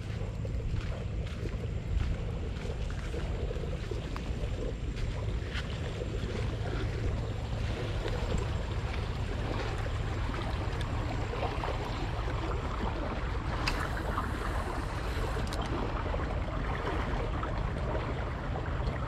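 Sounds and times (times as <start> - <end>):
water rushing: 0.0 - 19.0
wind rumbling on microphone: 0.0 - 19.0.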